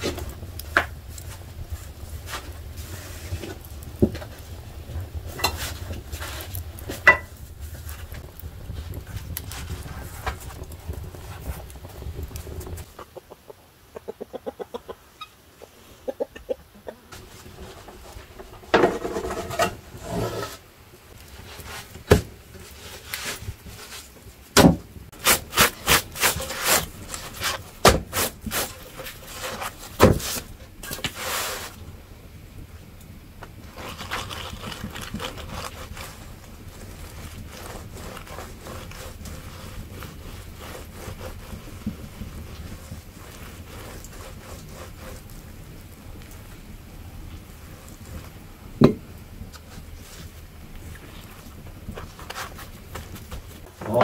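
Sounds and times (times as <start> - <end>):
butter rubbing on flatbread: 25.2 - 30.5, 33.6 - 46.3, 49.6 - 53.6.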